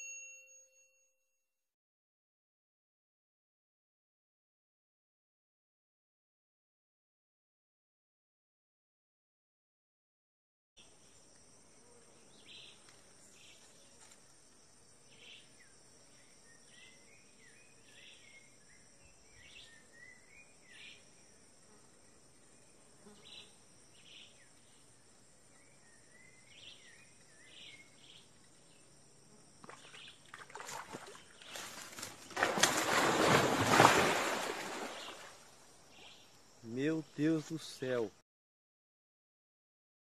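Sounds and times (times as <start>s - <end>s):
water splashing and churning: 29.6s - 35.5s.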